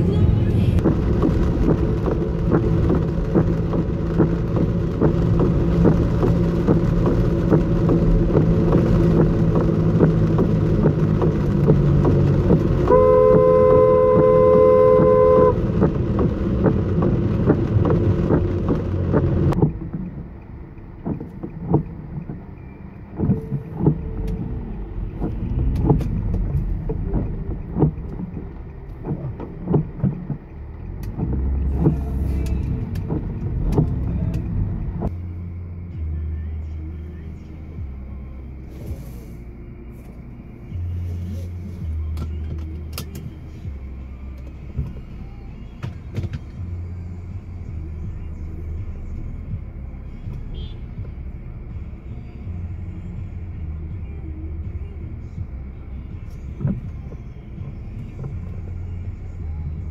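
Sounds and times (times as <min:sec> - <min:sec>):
car interior road noise: 0:00.0 - 0:59.9
car horn: 0:12.8 - 0:15.9, 0:50.4 - 0:51.0.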